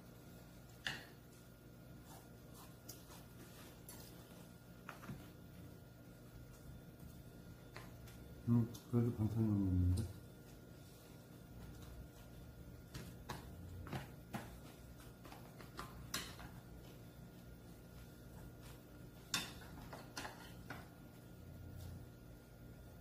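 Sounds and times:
chopsticks tapping ceramic plates: 0:12.9 - 0:16.7, 0:18.3 - 0:20.9.

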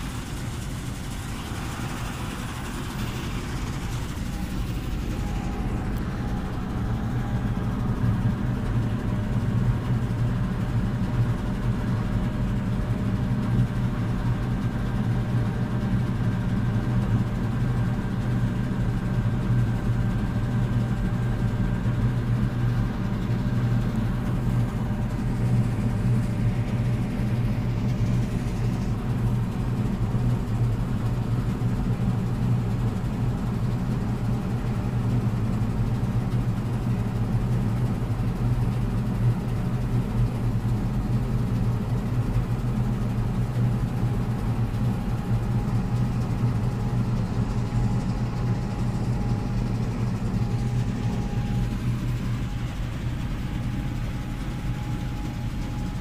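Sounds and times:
combine harvester machinery drone: 0:00.0 - 0:56.0
faint steady hums: 0:00.0 - 0:56.0.

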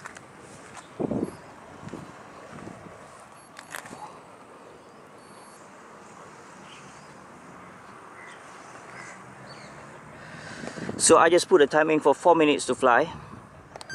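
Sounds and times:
faint outdoor background noise: 0:00.0 - 0:13.9
camera handling clicks: 0:03.6 - 0:04.0.

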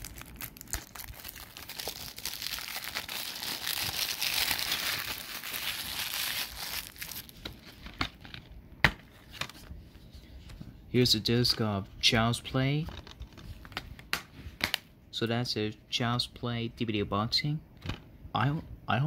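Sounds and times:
cellophane tearing and crinkling: 0:00.0 - 0:08.4.

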